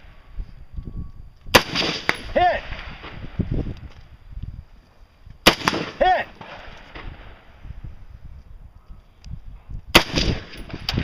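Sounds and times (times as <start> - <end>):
rifle shots: 1.5 - 3.3, 5.4 - 7.5, 9.9 - 11.0.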